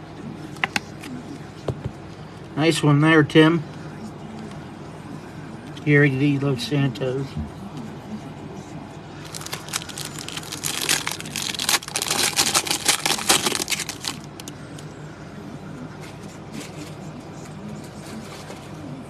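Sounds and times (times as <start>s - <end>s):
foil wrapper tearing and crinkling: 9.2s - 14.5s.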